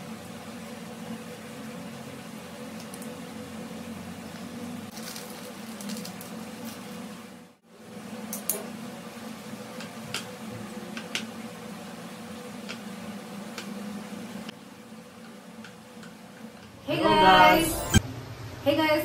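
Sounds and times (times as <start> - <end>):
seasoning shaken from paper sachet: 4.9 - 7.0.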